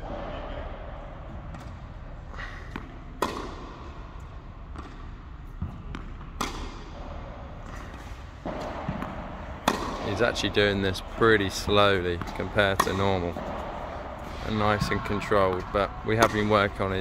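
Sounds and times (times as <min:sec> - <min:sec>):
tennis ball pops: 0:08.5 - 0:10.0.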